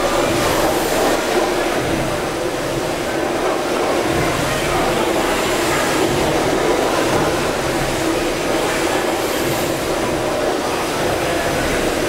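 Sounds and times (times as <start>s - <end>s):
steam beam engines running: 0.0s - 12.0s.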